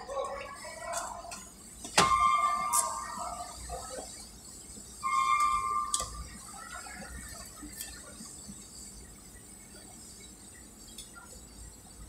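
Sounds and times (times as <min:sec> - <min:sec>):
steady high tone: 0:02.0 - 0:03.9, 0:05.0 - 0:06.8.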